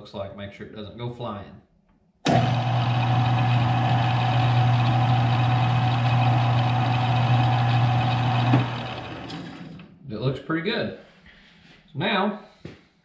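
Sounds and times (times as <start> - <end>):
lathe motor humming and whining: 2.3 - 9.9.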